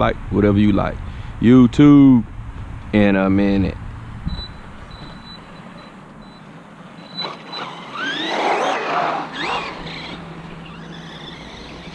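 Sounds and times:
electric motor whining: 0:07.0 - 0:11.9.

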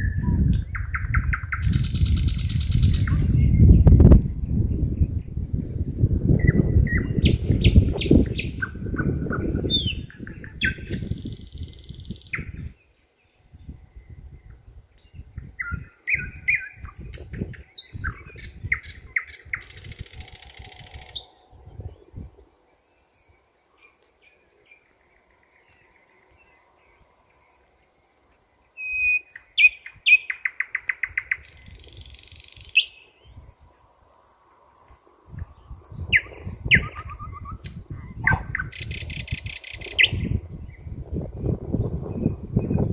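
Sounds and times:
wind rumble on microphone: 0:00.0 - 0:23.5, 0:30.8 - 0:42.9
nightingale singing: 0:00.0 - 0:42.9.

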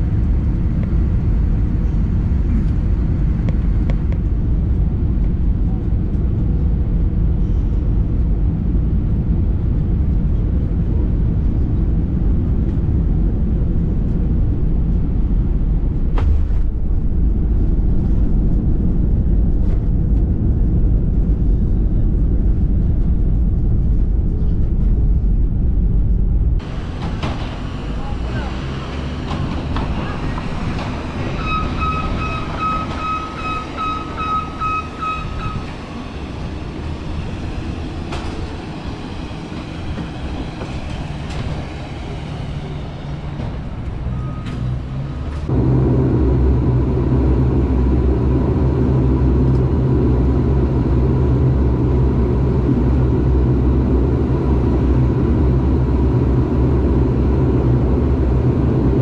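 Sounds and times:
deep steady drone: 0:00.0 - 0:35.7, 0:43.7 - 0:59.0
moving vehicle rumble: 0:00.0 - 0:59.0
short electronic beeps: 0:31.3 - 0:35.7.

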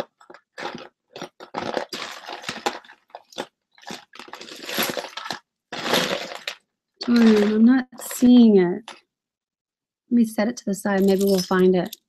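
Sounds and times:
jewelry clattering and rustling: 0:06.2 - 0:09.0, 0:10.9 - 0:12.0.

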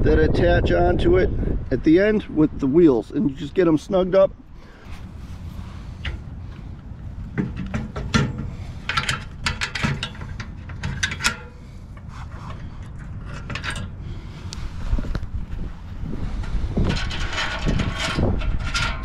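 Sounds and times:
steady low rumble: 0:00.0 - 0:19.0
metal clinks and clanks: 0:07.3 - 0:14.0.

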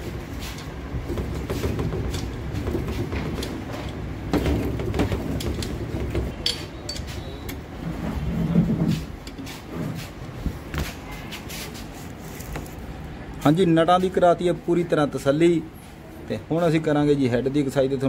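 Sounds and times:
low workshop rumble: 0:00.0 - 0:17.5
wrench metal clicks and knocks: 0:00.6 - 0:07.2.

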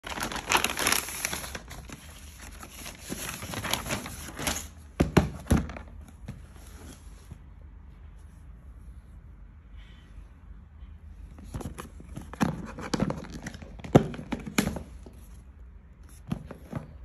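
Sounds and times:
plastic bag rustling: 0:00.0 - 0:04.8.

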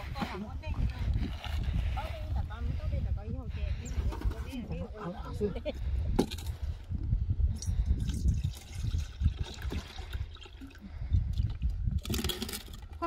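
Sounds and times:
wind rumble on microphone: 0:00.0 - 0:13.0
water pouring into a metal bowl: 0:08.0 - 0:13.0.

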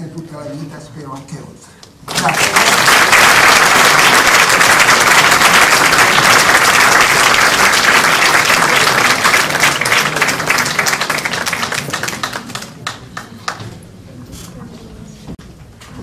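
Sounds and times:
audience applauding: 0:02.1 - 0:13.6.

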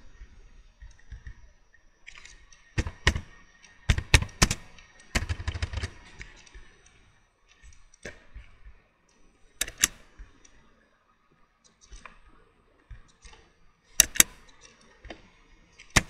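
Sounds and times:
keyboard keystrokes: 0:02.2 - 0:06.5, 0:09.6 - 0:10.0, 0:14.0 - 0:14.6
mouse clicks: 0:09.6 - 0:10.6, 0:12.9 - 0:16.0.

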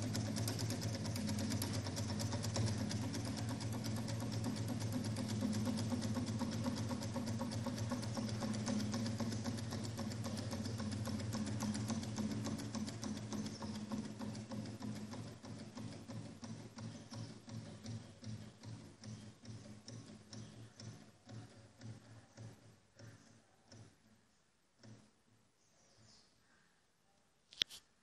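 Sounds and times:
engine mechanical clatter: 0:00.0 - 0:24.1.

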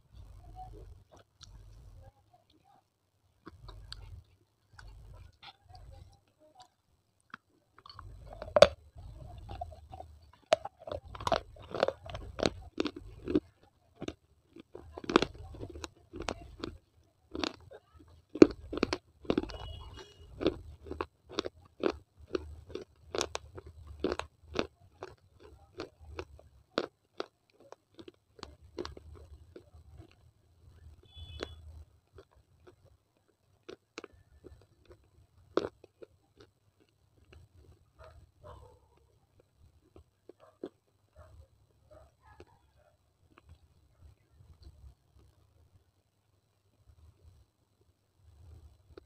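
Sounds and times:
brittle crunching while chewing: 0:03.4 - 0:41.3.

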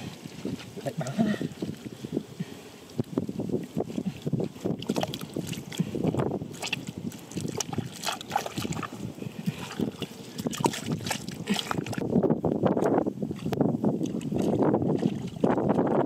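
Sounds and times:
water rushing from a pipe: 0:00.0 - 0:16.0
wet mud squelching: 0:00.0 - 0:16.0
mud splashing into water: 0:02.9 - 0:12.1, 0:12.8 - 0:15.8.

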